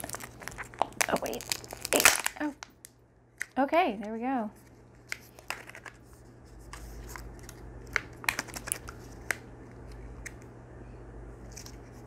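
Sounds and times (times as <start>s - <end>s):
packaging rustling: 0.0s - 2.6s, 4.6s - 9.4s.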